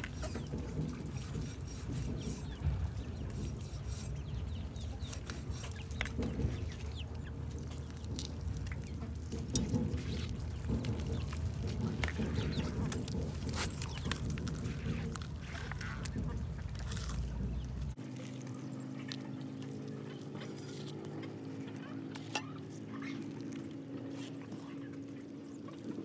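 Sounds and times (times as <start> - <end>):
chickens clucking: 0.0 - 18.0.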